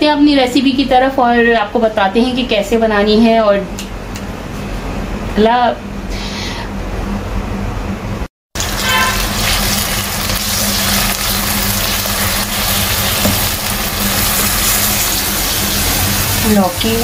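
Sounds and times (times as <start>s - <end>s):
onions sizzling in hot oil: 8.6s - 17.0s.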